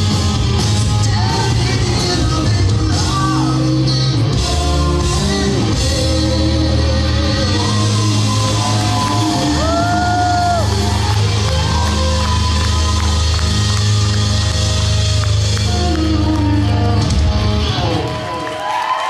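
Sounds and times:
live rock band playing: 0:00.0 - 0:18.6
crowd whooping and yelling: 0:07.0 - 0:19.0.

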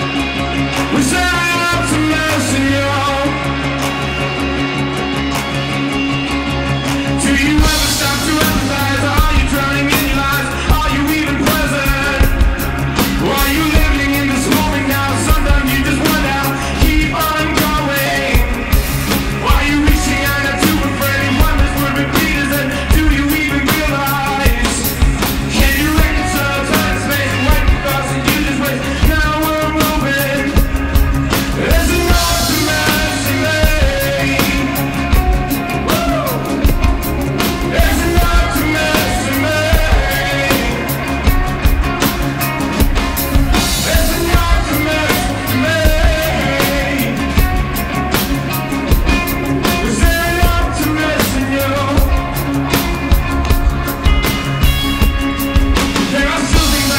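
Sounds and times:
man singing: 0:00.0 - 0:04.3, 0:07.0 - 0:56.9
drum kit beat: 0:00.0 - 0:56.9
electric guitar: 0:00.0 - 0:56.9.

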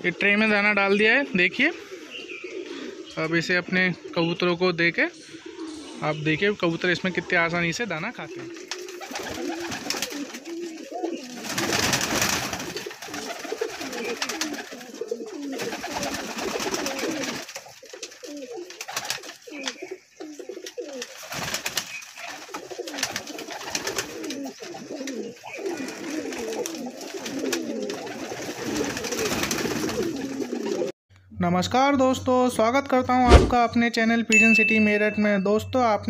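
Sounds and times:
pigeons cooing: 0:00.0 - 0:30.9
pigeons pecking on wooden tray: 0:08.5 - 0:30.9.

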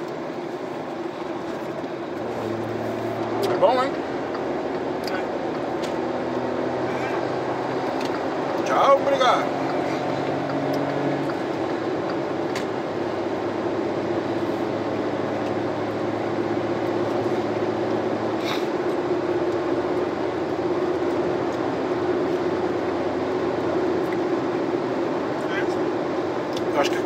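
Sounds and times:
car engine hum: 0:00.0 - 0:27.0
tyres and wind rushing: 0:00.0 - 0:27.0.

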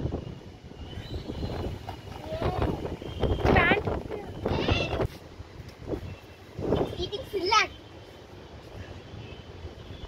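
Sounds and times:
wind buffeting microphone: 0:00.0 - 0:07.3.

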